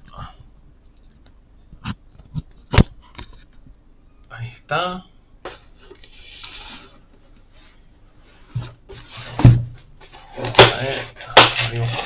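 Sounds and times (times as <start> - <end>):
cardboard box rubbing and scraping: 8.6 - 12.0
box thump: 9.3 - 9.8.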